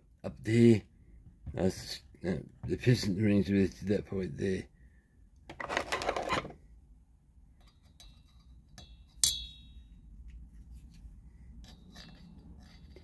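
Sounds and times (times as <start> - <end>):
sharp ringing metallic clink: 8.8 - 10.0.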